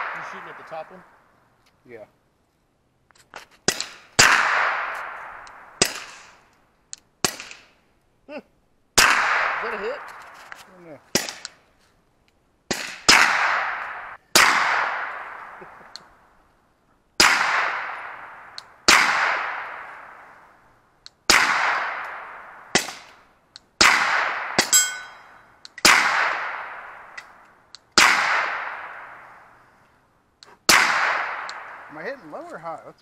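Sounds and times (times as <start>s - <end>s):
suppressed pistol shots: 3.6s - 6.5s, 7.2s - 7.7s, 9.0s - 10.3s, 11.1s - 11.6s, 12.7s - 16.1s, 17.2s - 20.4s, 21.3s - 23.2s, 23.8s - 25.1s, 25.7s - 27.4s, 28.0s - 29.5s, 30.6s - 31.9s
metallic ring: 24.6s - 25.5s.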